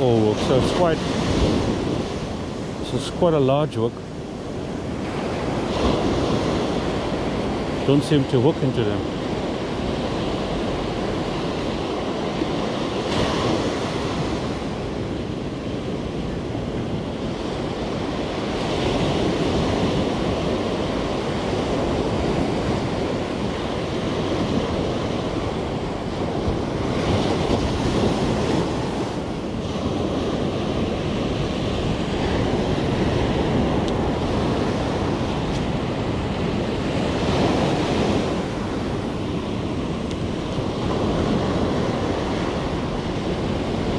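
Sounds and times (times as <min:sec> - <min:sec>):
wave crashing: 0:00.0 - 0:04.0
surf breaking on sandy beach: 0:00.0 - 0:43.9
wind buffeting microphone: 0:00.0 - 0:43.9.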